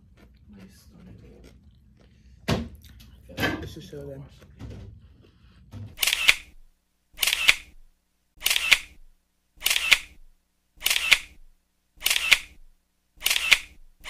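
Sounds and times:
camera shutter clicks: 0:06.0 - 0:06.6, 0:07.2 - 0:07.8, 0:08.4 - 0:09.0, 0:09.6 - 0:10.2, 0:10.8 - 0:11.4, 0:12.0 - 0:12.6, 0:13.2 - 0:13.8.

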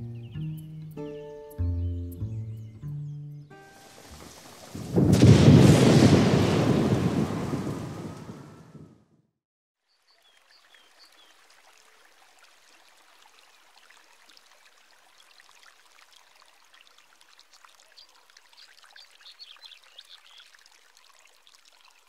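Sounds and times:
trickling water: 0:03.6 - 0:05.3, 0:09.8 - 0:22.0.

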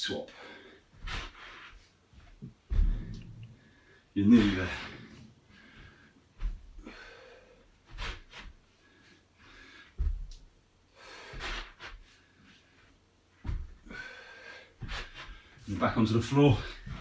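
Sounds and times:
man breathing hard: 0:00.3 - 0:01.4, 0:02.7 - 0:10.2, 0:10.9 - 0:12.9, 0:13.6 - 0:15.6
bare feet thudding on carpet: 0:00.9 - 0:03.4, 0:05.7 - 0:06.8, 0:10.0 - 0:10.5, 0:13.3 - 0:14.0.

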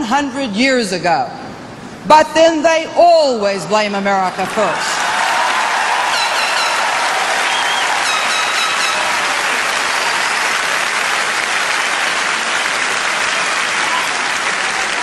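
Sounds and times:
audience applauding: 0:04.7 - 0:15.0
short whistles: 0:07.4 - 0:09.1, 0:09.8 - 0:10.6.

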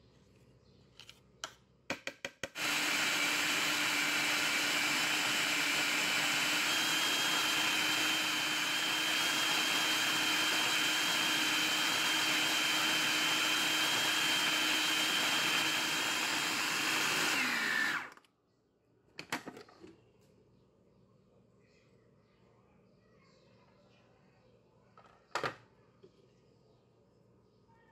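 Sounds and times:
food processor motor whining: 0:02.5 - 0:18.3.

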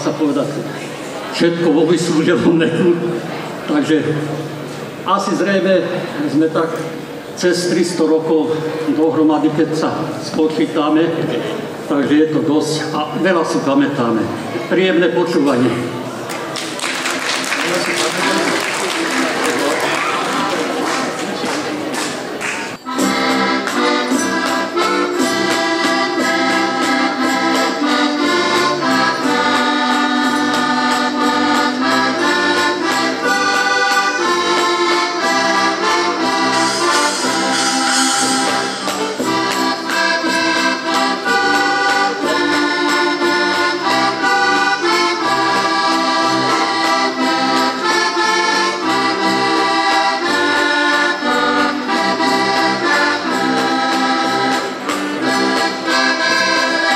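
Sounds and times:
button accordions playing folk tune: 0:22.8 - 0:56.9.

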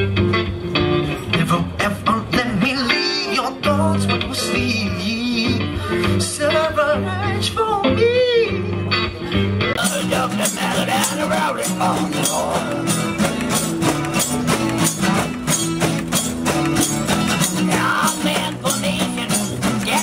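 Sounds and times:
electric guitar band music: 0:00.0 - 0:20.0
strummed guitar: 0:00.0 - 0:20.0
rattling jingling percussion: 0:09.8 - 0:20.0.

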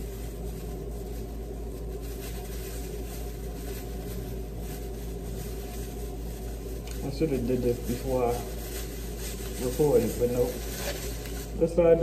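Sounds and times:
plastic bag rustling: 0:00.0 - 0:12.0
room and appliance hum: 0:00.0 - 0:12.0.

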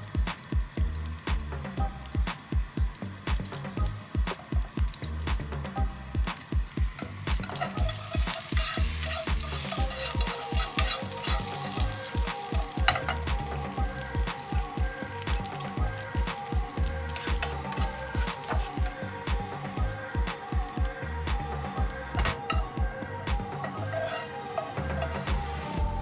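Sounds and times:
background music beat: 0:00.0 - 0:26.0
meat sizzling in a frying pan: 0:00.0 - 0:26.0
chopsticks scraping a pan: 0:07.0 - 0:14.7, 0:17.0 - 0:18.8, 0:23.6 - 0:25.3.

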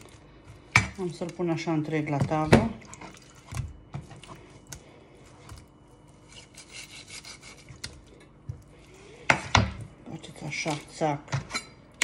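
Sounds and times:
knife sawing through raw chicken: 0:06.2 - 0:07.8.

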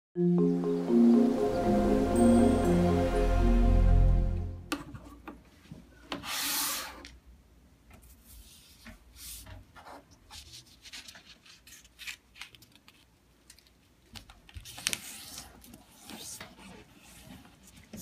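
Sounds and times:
paper sliding on a table: 0:06.1 - 0:07.1
paper being folded: 0:10.3 - 0:18.0.

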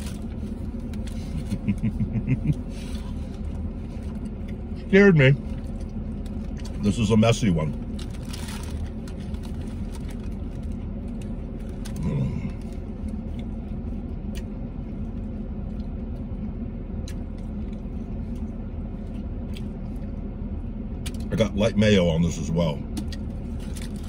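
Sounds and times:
vehicle rumble inside cabin: 0:00.0 - 0:24.0
chewing and mouth noises: 0:07.8 - 0:20.2.

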